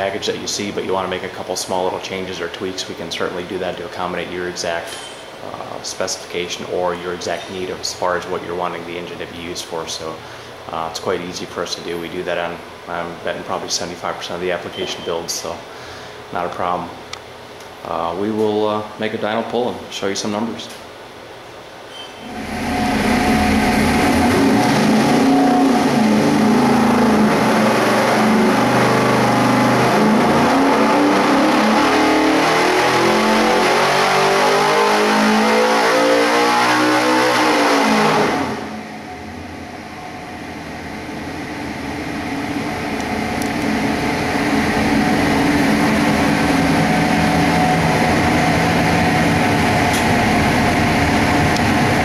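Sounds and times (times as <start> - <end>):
engine revving on a dyno: 22.2 - 52.0.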